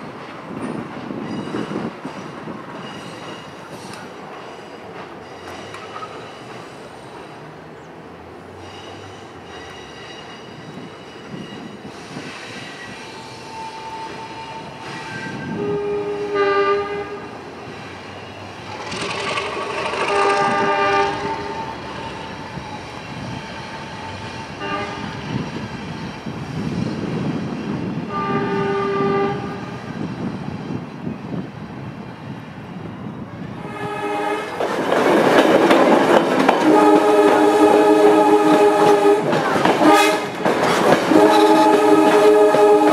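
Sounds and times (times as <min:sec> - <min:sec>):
train running: 0:00.0 - 0:42.9
train air horn blasts: 0:13.1 - 0:17.3, 0:19.6 - 0:22.7, 0:24.1 - 0:25.2, 0:28.1 - 0:29.7, 0:33.6 - 0:34.6, 0:36.6 - 0:40.4, 0:41.0 - 0:42.9.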